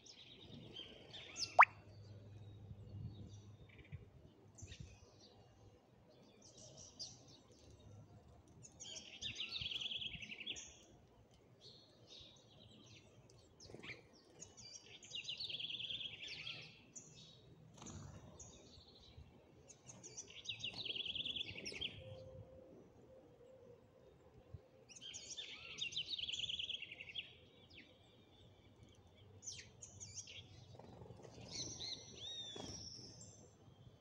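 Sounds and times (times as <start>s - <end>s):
small birds chirping: 0.0s - 4.0s, 24.9s - 34.0s.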